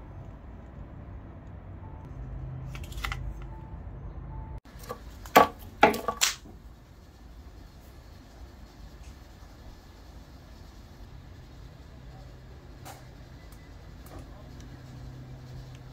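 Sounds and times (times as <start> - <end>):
metal cans clacking: 4.8 - 6.4.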